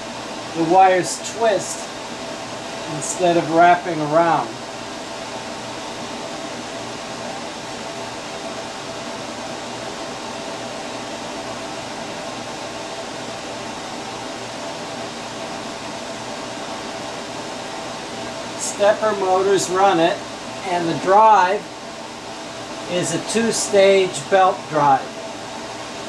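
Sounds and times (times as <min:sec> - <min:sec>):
faint steady hums: 0:00.0 - 0:26.0
fan hissing: 0:00.0 - 0:26.0.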